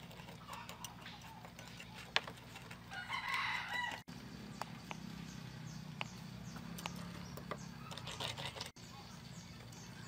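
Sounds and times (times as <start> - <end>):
rooster crowing: 2.9 - 4.1.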